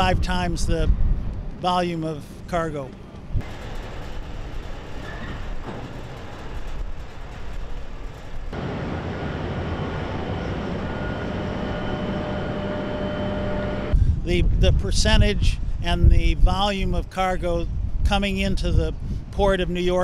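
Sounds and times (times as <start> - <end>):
heavy machinery rumble: 2.2 - 14.0
faint high whines: 8.6 - 14.0.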